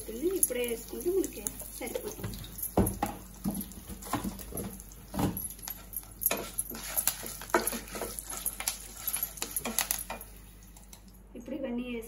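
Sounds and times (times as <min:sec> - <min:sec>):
wooden spatula scraping a pan: 0:06.3 - 0:10.2.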